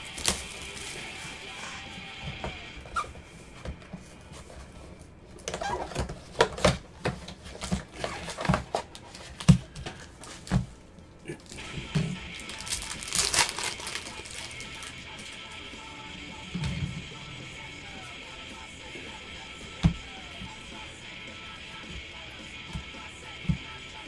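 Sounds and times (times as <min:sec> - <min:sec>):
plastic wrapper crinkling and tearing: 0:00.0 - 0:01.2, 0:12.3 - 0:14.9
background music: 0:00.0 - 0:04.6, 0:11.2 - 0:24.0.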